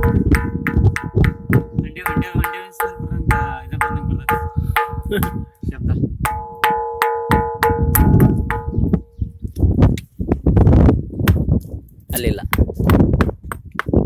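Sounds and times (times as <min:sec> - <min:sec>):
stone striking ringing boulder: 0:00.0 - 0:05.5, 0:06.3 - 0:09.4.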